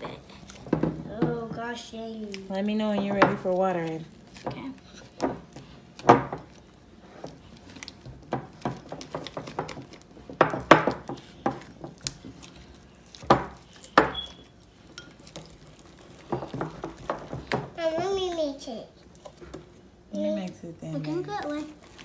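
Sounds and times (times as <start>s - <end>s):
spoons clinking against glass bowls: 13.8s - 15.4s.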